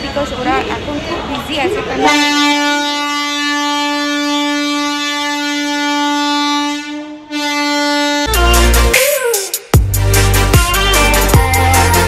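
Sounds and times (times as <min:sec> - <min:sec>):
train horn blast: 0:02.0 - 0:08.8.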